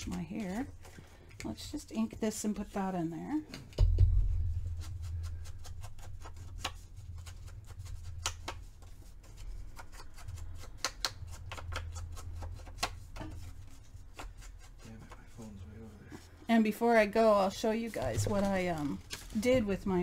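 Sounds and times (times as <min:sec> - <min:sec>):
ink pad tapping and rubbing paper: 0:00.0 - 0:15.4, 0:17.2 - 0:20.0.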